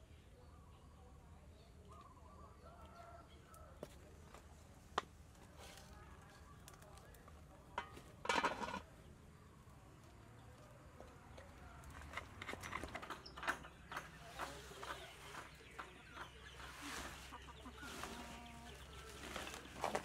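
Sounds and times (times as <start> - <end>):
chickens clucking: 10.8 - 20.0.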